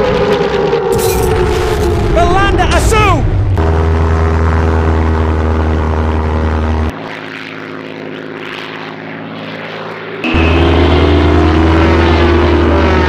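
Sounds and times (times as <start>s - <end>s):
high engine whine: 0.0s - 13.0s
propeller plane engines droning: 0.0s - 13.0s.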